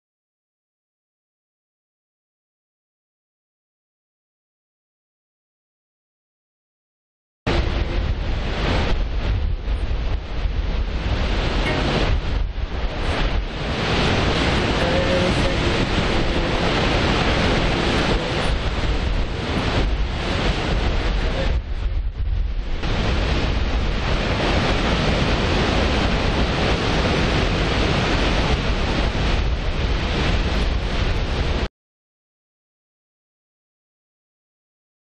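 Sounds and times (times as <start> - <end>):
waterfall rushing: 7.5 - 21.7, 22.7 - 31.7
waves breaking: 7.5 - 31.7.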